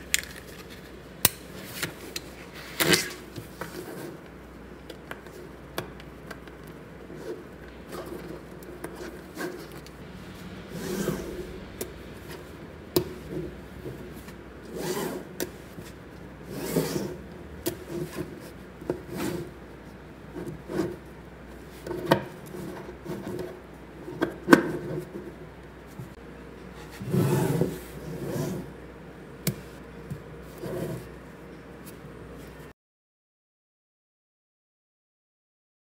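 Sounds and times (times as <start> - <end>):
magnetic balls rubbed on table: 26.8 - 28.7, 30.4 - 31.1.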